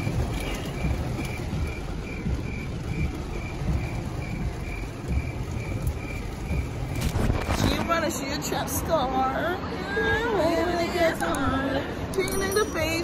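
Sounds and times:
low rumble of car cabin in rain: 0:00.0 - 0:13.0
cricket chirping: 0:00.3 - 0:07.1.

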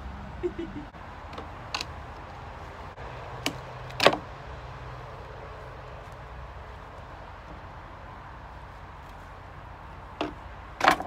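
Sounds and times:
wooden knocks of slats pried off: 0:03.4 - 0:04.2, 0:10.2 - 0:11.0.

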